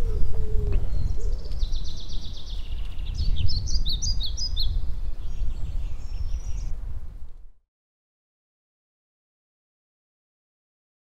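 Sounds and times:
songbird trilling and chirping: 0.0 - 6.8.

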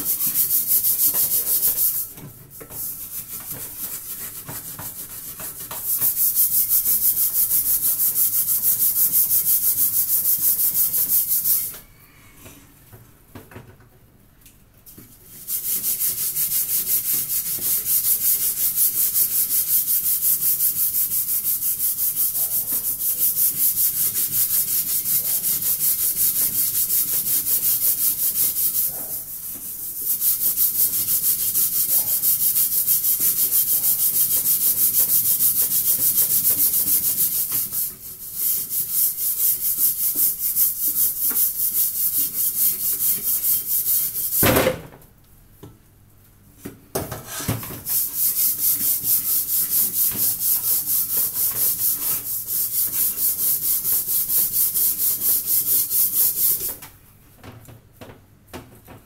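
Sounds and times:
scrubbing a metal pot: 47.3 - 56.7.

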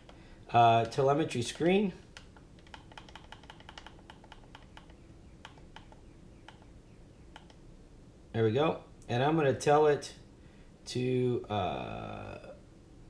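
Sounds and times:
radio transmitter buttons clicking: 1.6 - 6.7.

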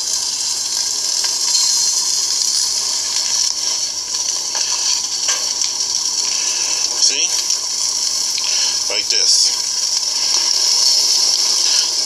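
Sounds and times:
sausages sizzling on a grill: 0.0 - 12.0.

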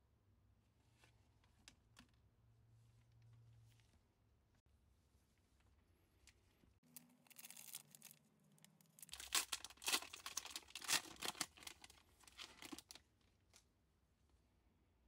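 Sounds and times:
foil wrapper crinkling: 6.9 - 8.2, 8.8 - 13.0
foil wrapper tearing: 7.0 - 8.2, 8.9 - 12.9.

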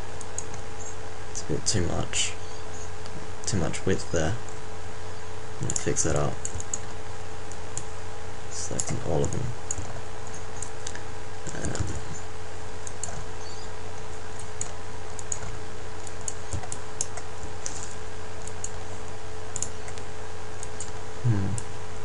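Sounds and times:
steady electrical hum: 0.0 - 22.0
computer keyboard and mouse clicks: 5.6 - 7.0, 8.7 - 12.1, 12.8 - 13.3, 14.4 - 18.8, 20.6 - 21.0.

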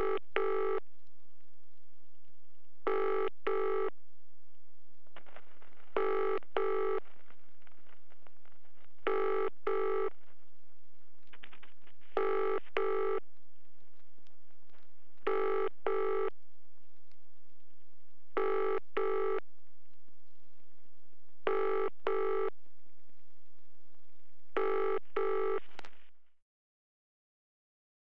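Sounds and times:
telephone ringing: 0.0 - 0.8, 2.9 - 3.9, 6.0 - 7.0, 9.1 - 10.1, 12.2 - 13.2, 15.3 - 16.3, 18.4 - 19.4, 21.5 - 22.5, 24.6 - 25.6.

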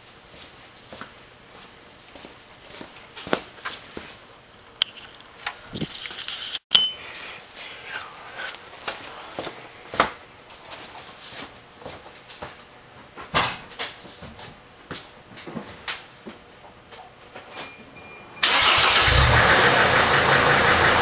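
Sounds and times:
short high beep: 6.7 - 7.0.

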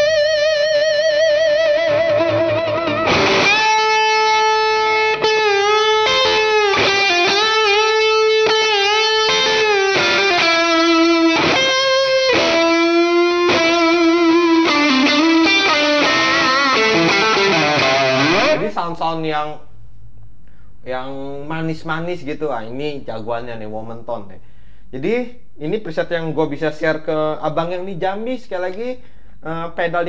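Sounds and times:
electric guitar lead melody: 0.0 - 18.6.

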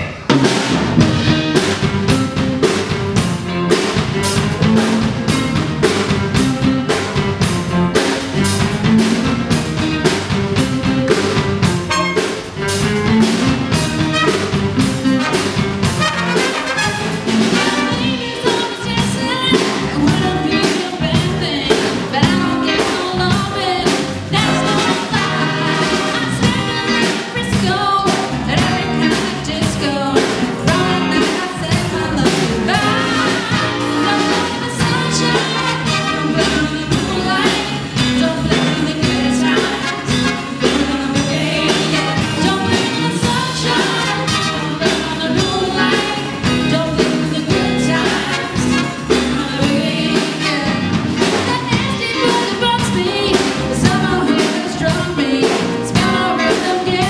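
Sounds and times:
drum kit beat: 0.0 - 57.0
electric guitar: 0.0 - 57.0
trombone: 11.2 - 18.6, 24.3 - 27.2, 28.4 - 52.6, 53.6 - 57.0
saxophones: 11.8 - 12.8
woman singing: 17.4 - 57.0.

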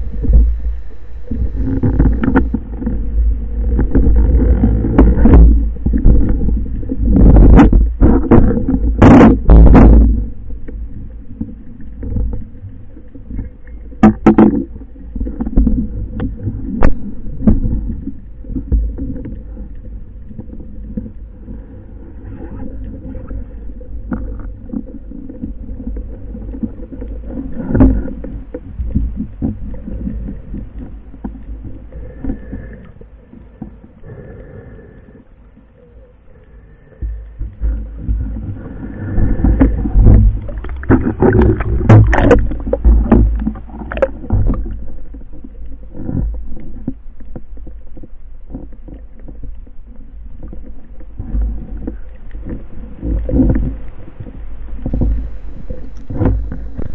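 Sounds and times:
faint steady hum: 0.0 - 8.9, 51.2 - 56.9
underwater rumble: 0.0 - 56.9.

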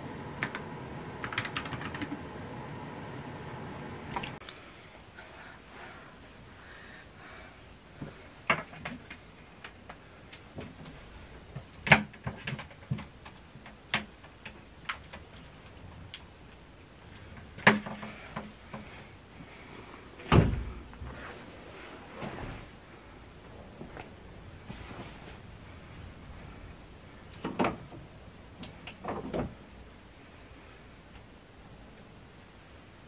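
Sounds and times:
clicks and knocks of handling objects: 8.0 - 19.0
heavy dull thump: 20.2 - 21.2.

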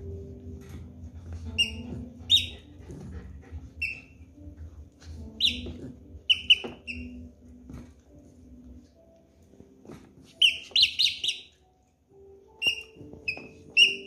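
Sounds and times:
dog toy squeaking: 1.5 - 2.7, 3.8 - 4.4, 5.2 - 7.4, 10.3 - 11.6, 12.5 - 14.0.

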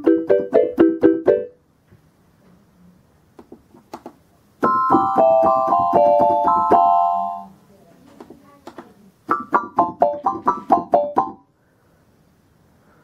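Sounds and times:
keyboard marimba notes: 4.6 - 7.5, 9.3 - 11.4
keyboard music box melody: 4.6 - 7.5.

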